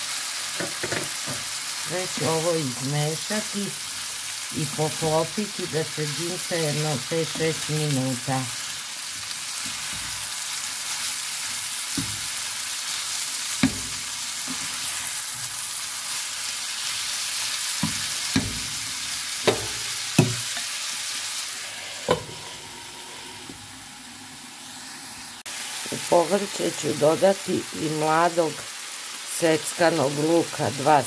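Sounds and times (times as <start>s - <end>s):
vegetables sizzling in frying pan: 0.0s - 31.0s
wooden spatula knocking pan: 13.6s - 14.8s, 17.8s - 20.7s.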